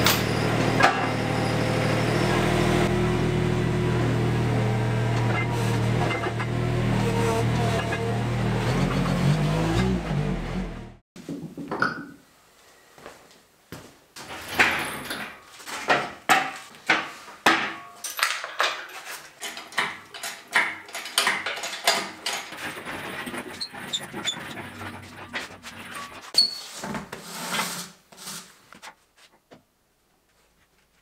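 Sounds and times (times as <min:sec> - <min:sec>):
metal scraping: 0:05.1 - 0:10.2, 0:21.7 - 0:28.6
steel parts clanking on concrete: 0:05.2 - 0:06.6, 0:07.6 - 0:08.1, 0:14.2 - 0:24.9.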